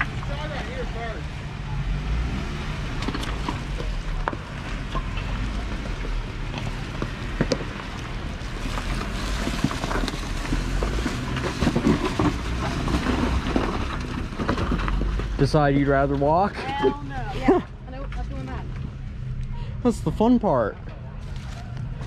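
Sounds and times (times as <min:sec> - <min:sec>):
tyres rolling over rocks: 0:02.7 - 0:18.8.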